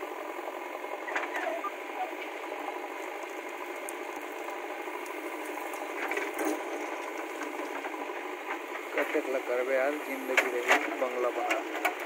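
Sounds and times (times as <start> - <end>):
diesel engine running: 0.0 - 12.0
backhoe digging soil: 5.4 - 12.0.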